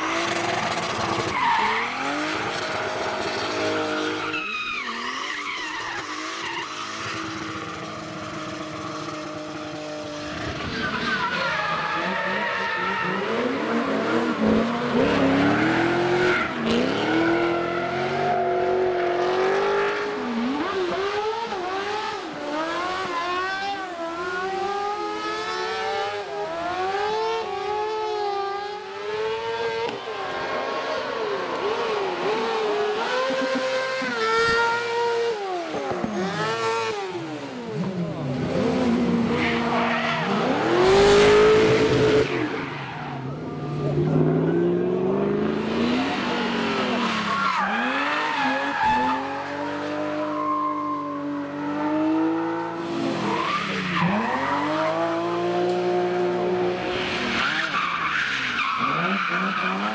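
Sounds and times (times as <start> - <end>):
car engine revving: 11.9 - 50.4.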